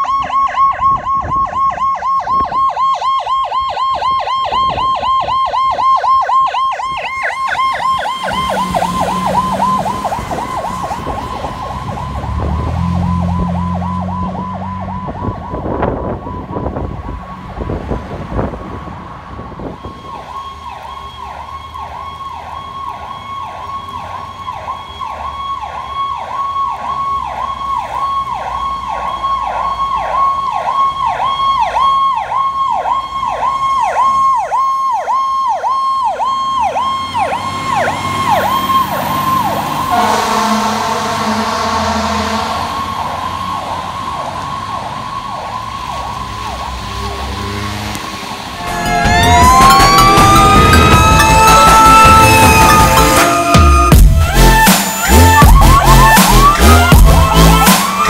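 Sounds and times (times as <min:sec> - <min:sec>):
electronic siren yelping: 0:00.0 - 0:17.4, 0:19.6 - 0:47.5, 0:48.5 - 0:58.0
traffic noise: 0:00.0 - 0:58.0
deep low horn blasts: 0:39.8 - 0:42.8.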